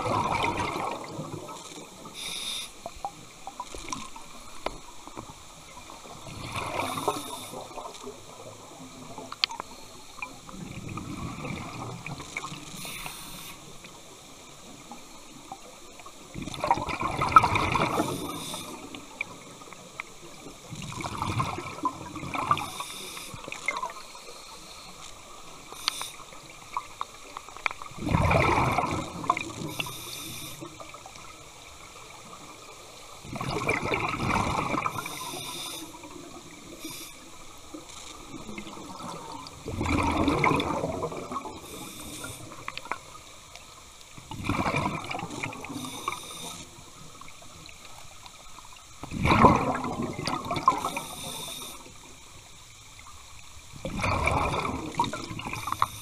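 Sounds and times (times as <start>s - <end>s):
exhaled bubbles rushing: 0.0s - 1.6s, 5.8s - 7.9s, 10.5s - 12.2s, 16.3s - 18.9s, 20.8s - 22.8s, 27.9s - 29.9s, 33.2s - 36.8s, 38.4s - 42.6s, 44.3s - 46.1s, 49.0s - 51.2s, 53.8s - 56.0s
regulator in-breath hiss: 2.1s - 2.9s, 6.8s - 7.8s, 12.7s - 13.7s, 17.9s - 19.0s, 22.6s - 25.0s, 25.6s - 26.4s, 29.6s - 30.7s, 34.9s - 36.1s, 36.7s - 37.6s, 41.6s - 42.7s, 45.8s - 46.8s, 50.8s - 52.1s, 55.6s - 56.0s.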